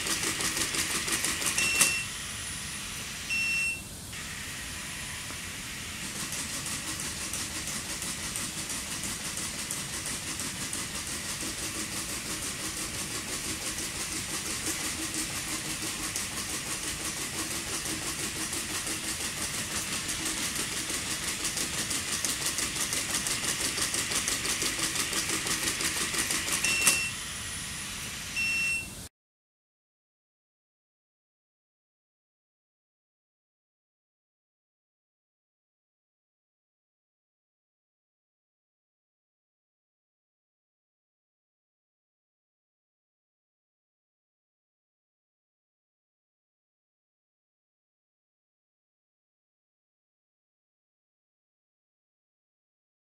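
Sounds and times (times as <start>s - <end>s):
short high beeps: 1.6s - 2.1s, 3.3s - 3.9s, 26.6s - 27.2s, 28.4s - 29.0s.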